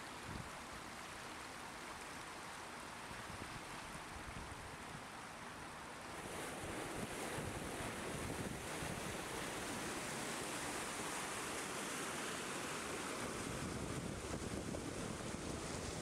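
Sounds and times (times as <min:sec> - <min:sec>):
rushing floodwater: 0:00.0 - 0:16.0
wind buffeting microphone: 0:06.6 - 0:09.2, 0:13.6 - 0:16.0.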